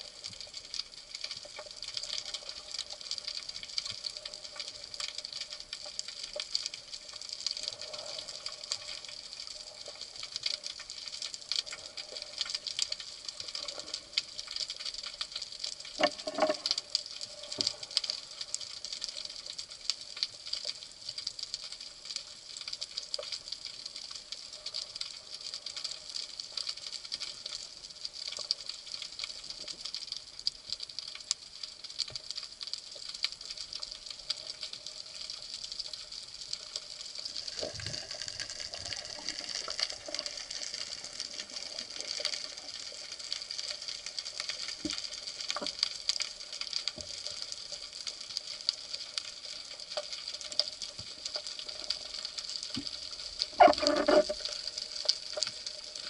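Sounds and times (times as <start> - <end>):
underwater hiss with crackling: 0.0 - 56.0.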